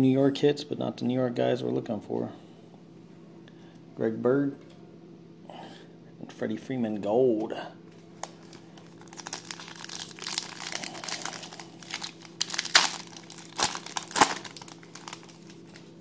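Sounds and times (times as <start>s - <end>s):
wrapper crinkling and tearing: 8.2s - 16.0s.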